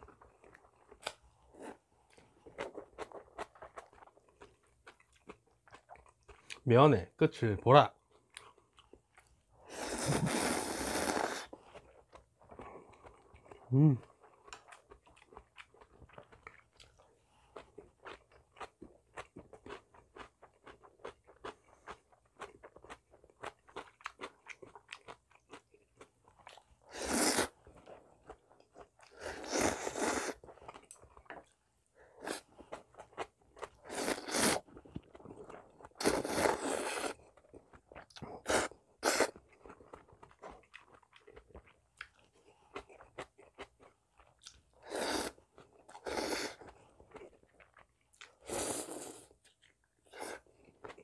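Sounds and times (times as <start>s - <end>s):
chewing noodles: 0.0s - 6.6s, 8.0s - 51.0s
loud noodle slurps: 9.7s - 11.6s, 26.9s - 27.6s, 29.1s - 30.4s, 33.8s - 34.7s, 36.0s - 37.2s, 38.4s - 39.4s, 44.8s - 45.4s, 46.0s - 46.7s, 48.3s - 49.4s.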